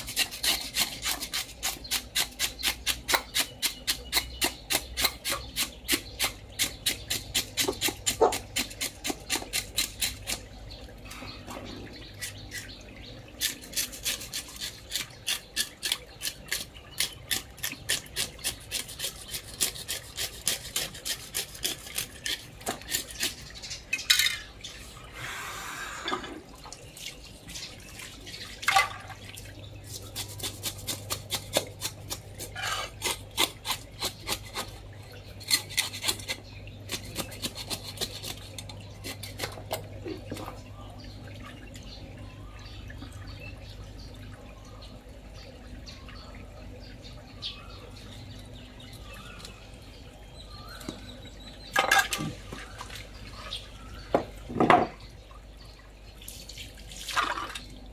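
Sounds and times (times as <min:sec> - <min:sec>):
blade scraping fish scales: 0:00.0 - 0:11.3, 0:13.4 - 0:23.8, 0:29.8 - 0:39.7.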